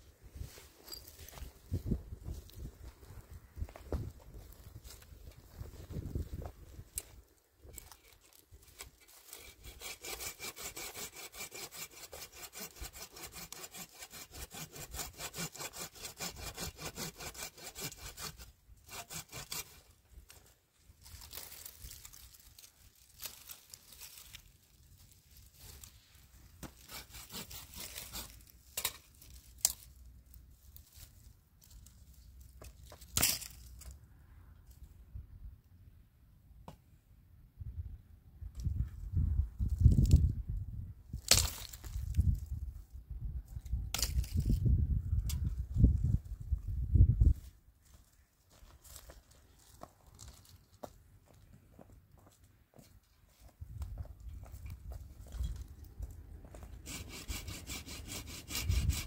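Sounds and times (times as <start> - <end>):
saw cutting wood: 8.8 - 19.9, 26.6 - 28.9, 56.6 - 59.0.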